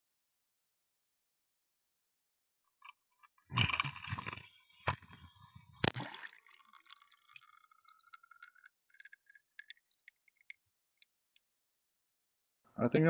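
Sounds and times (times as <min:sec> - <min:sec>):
faint clicks and ticks: 0:02.8 - 0:11.4.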